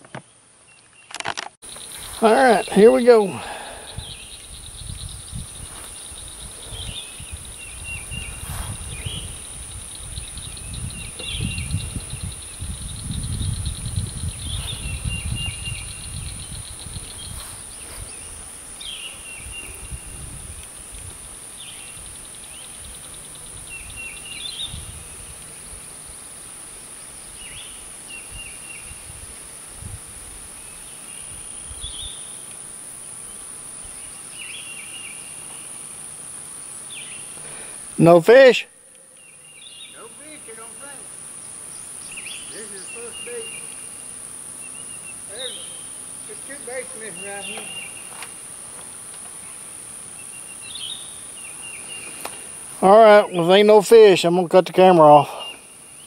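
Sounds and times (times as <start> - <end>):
bird song phrase: 1.7 - 20.6, 21.6 - 25.3, 36.9 - 48.3, 50.2 - 56.0
high-pitched insect drone: 39.2 - 54.2.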